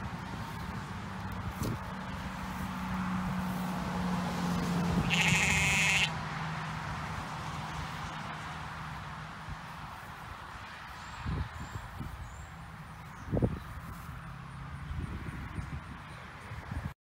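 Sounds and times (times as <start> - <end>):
sheep bleating: 5.0 - 6.2.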